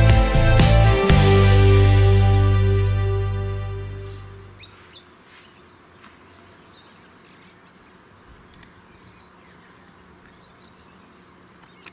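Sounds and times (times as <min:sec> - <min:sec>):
small birds chirping: 0:03.8 - 0:11.9
soft clicks: 0:08.5 - 0:08.8.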